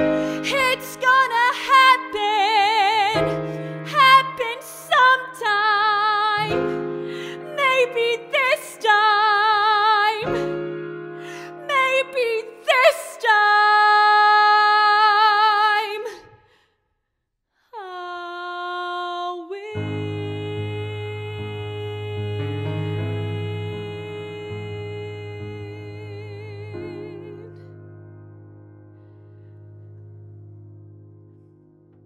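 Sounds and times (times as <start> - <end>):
grand piano chords: 0.0 - 15.9, 19.7 - 32.0
woman singing with vibrato: 0.2 - 10.4, 11.3 - 16.4, 17.8 - 27.7.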